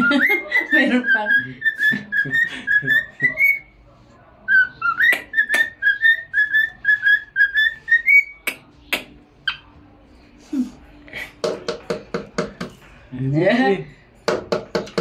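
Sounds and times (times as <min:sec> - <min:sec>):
cockatiel whistling: 0:00.0 - 0:03.7, 0:04.5 - 0:08.5.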